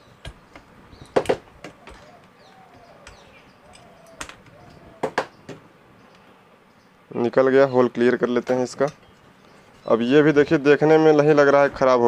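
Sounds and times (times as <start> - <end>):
sharp clicks and knocks: 0.2 - 5.6.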